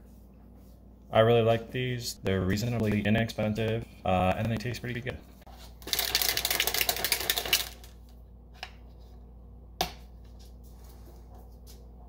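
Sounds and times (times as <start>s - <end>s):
shaker bottle rattling: 5.8s - 8.0s.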